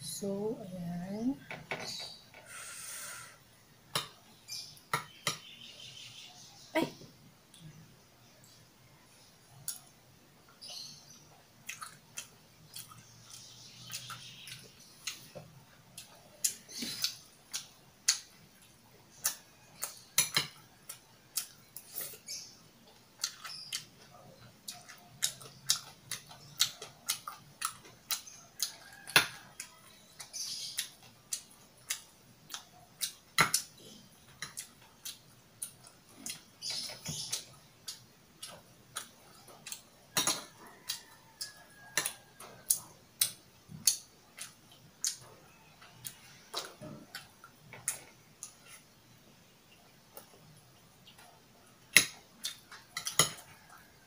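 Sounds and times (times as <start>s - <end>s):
chewing and mouth sounds: 11.6s - 48.9s, 50.0s - 53.9s.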